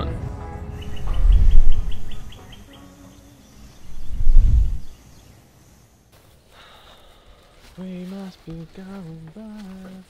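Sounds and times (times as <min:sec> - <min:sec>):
loud low rumble: 0:00.0 - 0:02.7
bird chirping: 0:00.6 - 0:05.9.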